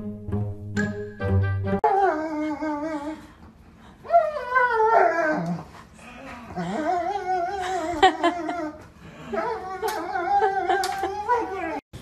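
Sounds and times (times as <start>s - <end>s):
dog whining: 4.1s - 11.8s.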